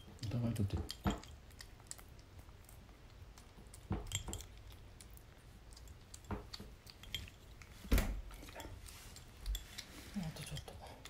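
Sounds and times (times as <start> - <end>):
kitten eating: 0.0 - 11.0
spoon and bowl clinking: 4.0 - 4.7, 6.8 - 7.6, 8.4 - 10.8.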